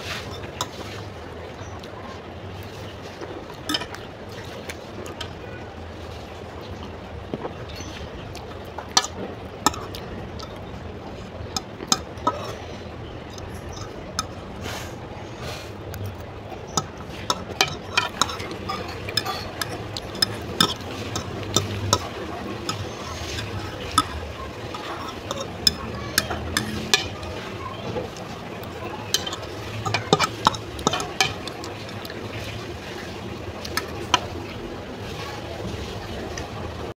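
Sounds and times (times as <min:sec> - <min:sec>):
fork scraping a plate: 0:00.0 - 0:01.1, 0:03.6 - 0:04.0, 0:08.9 - 0:34.4.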